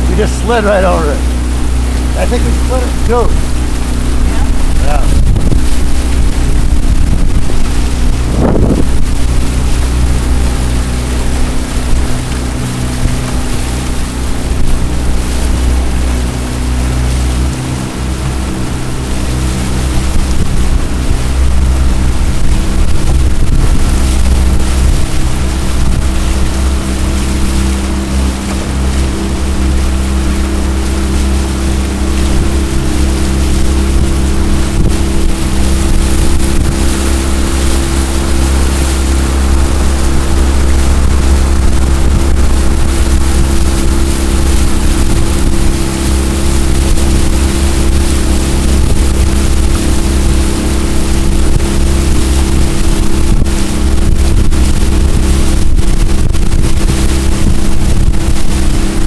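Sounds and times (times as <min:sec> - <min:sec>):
outboard motor running: 0:00.0 - 0:59.0
water rushing past hull: 0:00.0 - 0:59.0
wind on microphone: 0:00.0 - 0:59.0.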